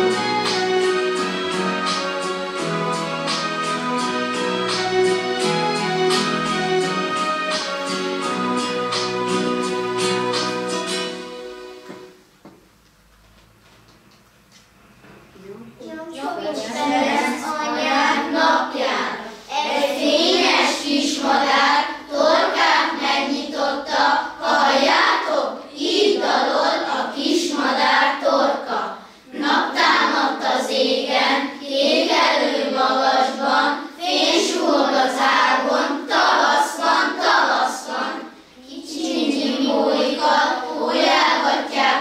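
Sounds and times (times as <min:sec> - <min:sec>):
children's choir singing: 0:00.0 - 0:12.2, 0:16.4 - 0:42.0.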